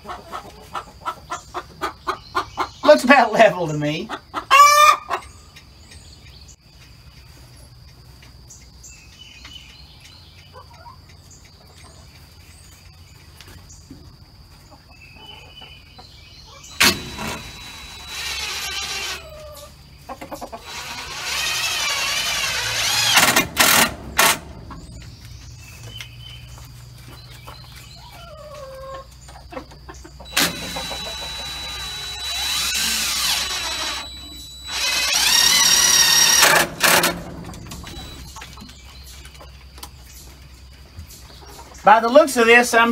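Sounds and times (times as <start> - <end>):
chickens clucking softly: 0.0 - 5.7, 10.3 - 16.6, 19.2 - 20.7, 27.2 - 31.7, 41.2 - 41.8
cordless drill driving screws: 16.7 - 19.3, 20.6 - 25.0, 30.3 - 38.2.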